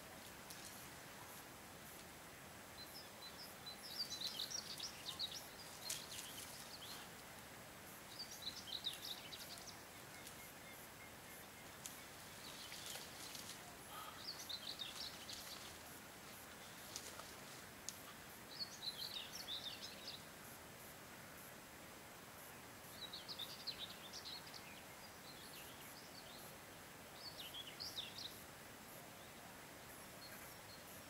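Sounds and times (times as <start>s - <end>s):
outdoor background hiss: 0.0s - 31.0s
songbird chirping: 0.0s - 31.0s
faint clicks: 0.2s - 2.1s, 8.8s - 10.6s, 11.6s - 14.2s, 16.5s - 18.2s.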